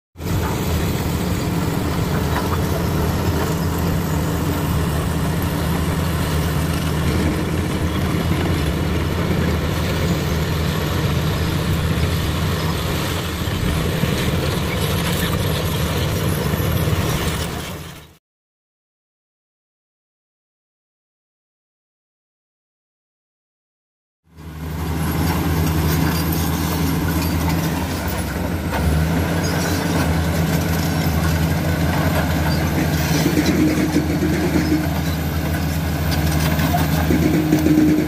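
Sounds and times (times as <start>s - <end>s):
blade pushing rock and soil: 0.2s - 18.2s, 24.6s - 38.0s
bulldozer diesel engine under load: 0.2s - 18.2s, 24.3s - 38.0s.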